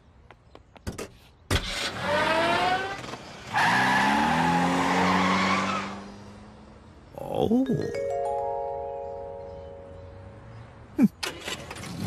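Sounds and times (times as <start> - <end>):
loud tyre screech: 1.6 - 6.4.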